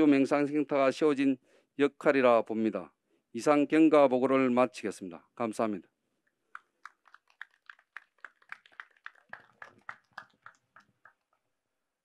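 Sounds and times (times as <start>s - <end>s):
faint light applause: 6.5s - 11.4s.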